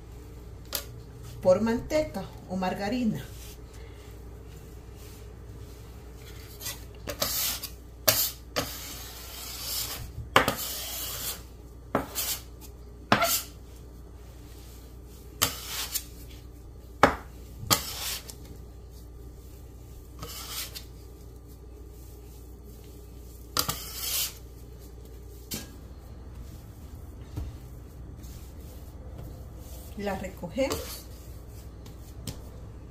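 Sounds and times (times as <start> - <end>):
bench scraper scraping dough: 6.3 - 13.6, 15.3 - 16.4, 17.0 - 18.4, 20.1 - 21.0, 23.1 - 25.7, 26.3 - 32.6.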